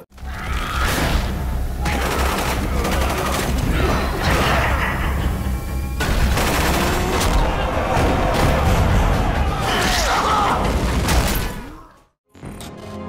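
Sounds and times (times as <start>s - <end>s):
rapid gunfire sound effects: 1.8s - 4.6s, 6.0s - 9.6s.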